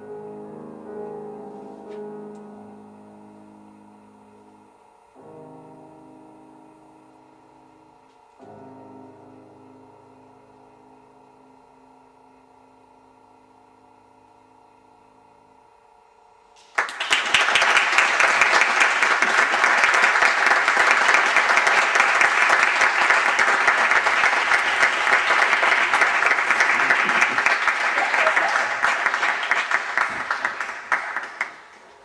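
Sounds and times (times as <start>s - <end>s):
piano chord: 0.0s - 15.3s
audience applause: 16.6s - 32.0s.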